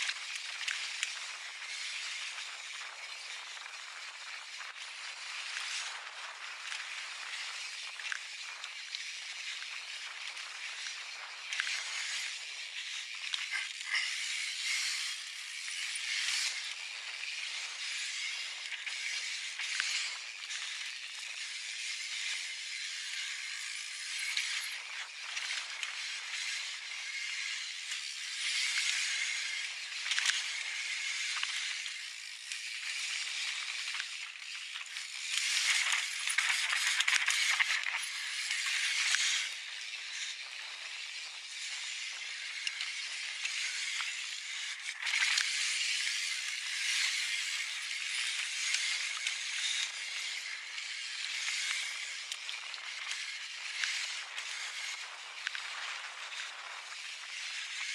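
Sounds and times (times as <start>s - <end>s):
bike tyres rolling over gravel: 0.0s - 22.7s, 23.5s - 57.9s
bike chain rattling: 0.1s - 21.8s, 34.4s - 41.2s.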